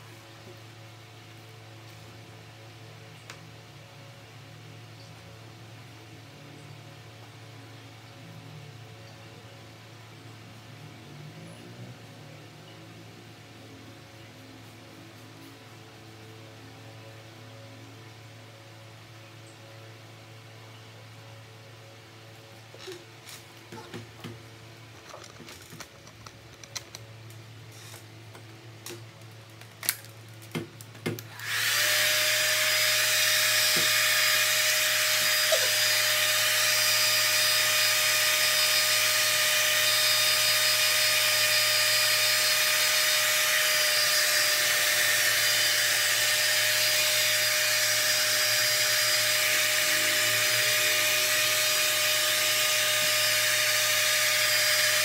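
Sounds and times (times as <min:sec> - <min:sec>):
hair dryer running: 0:31.2 - 0:55.0.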